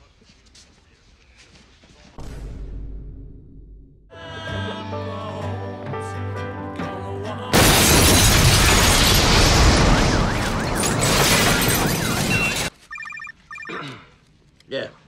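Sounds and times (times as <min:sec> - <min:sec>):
short electronic tones: 0:11.8 - 0:14.0.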